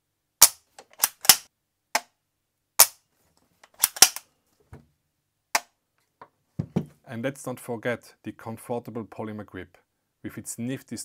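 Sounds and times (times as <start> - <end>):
gun mechanism clicks and clacks: 0.4 - 1.5, 3.6 - 4.2.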